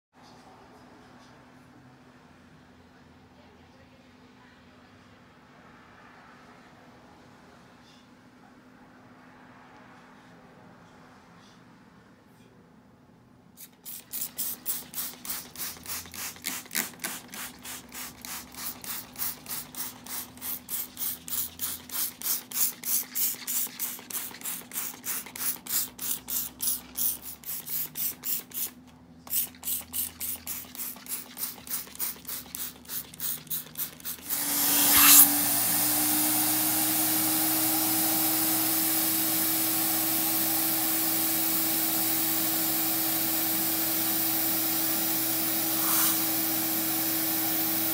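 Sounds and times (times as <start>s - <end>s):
trigger spray bottle squirting: 13.6s - 35.3s
carpet extractor vacuum motor: 34.2s - 47.9s.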